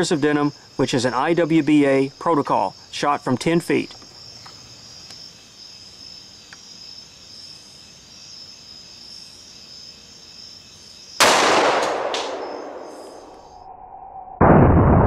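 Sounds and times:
high insect drone: 0.0s - 11.3s, 11.9s - 13.7s
pistol shot ringing: 11.2s - 13.3s.

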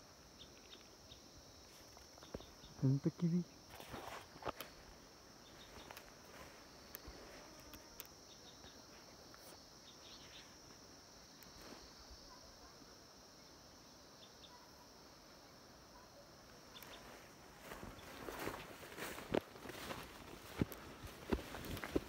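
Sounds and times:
faint ticks: 6.9s - 9.4s.

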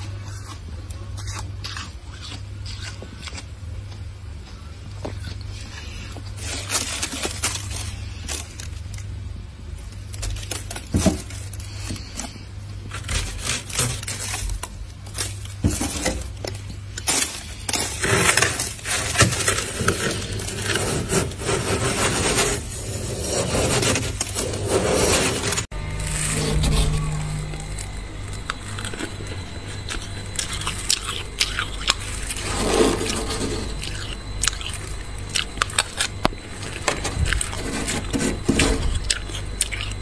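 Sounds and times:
steady low hum: 0.0s - 40.0s
scraper scraping freezer frost: 10.2s - 36.0s, 36.6s - 39.9s.

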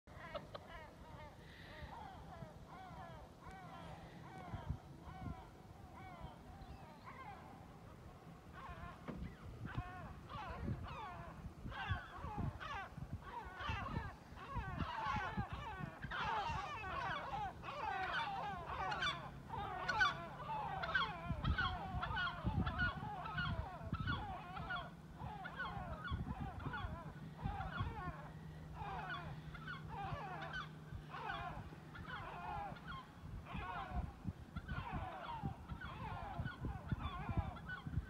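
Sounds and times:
gulls calling: 0.1s - 38.0s.

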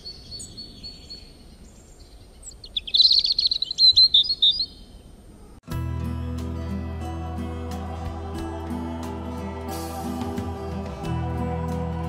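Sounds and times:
small songbird chirping: 0.0s - 5.2s.

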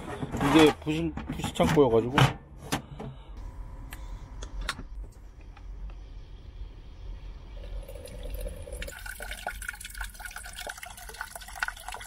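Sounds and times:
water pouring into metal pot: 7.5s - 12.0s.

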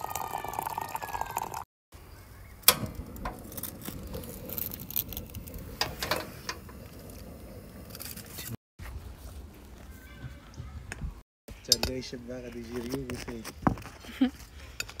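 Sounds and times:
water pouring into teapot: 0.0s - 1.7s.

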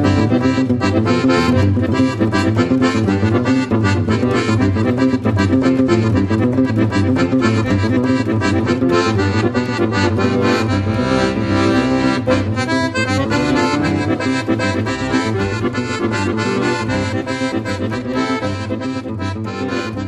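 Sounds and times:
accordion instrumental music: 0.0s - 20.0s.

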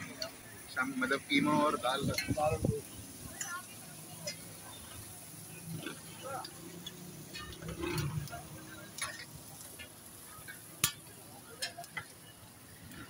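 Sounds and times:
kebabs sizzling on a griddle: 0.0s - 13.0s.

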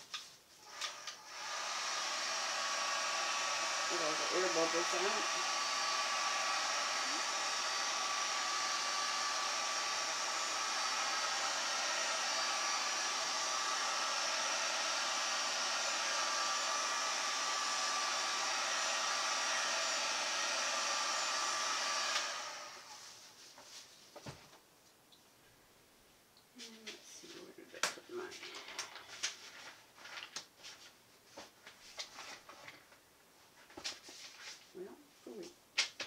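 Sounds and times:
heat gun fan blowing: 0.6s - 23.0s.

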